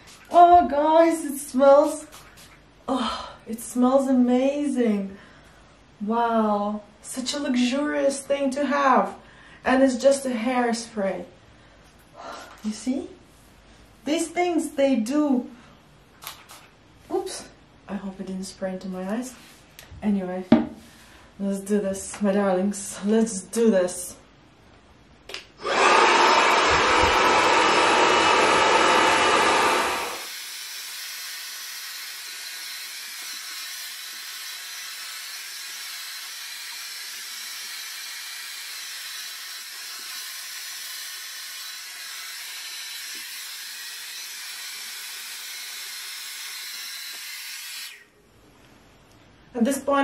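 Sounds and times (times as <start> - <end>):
hair dryer blowing: 25.6 - 48.1.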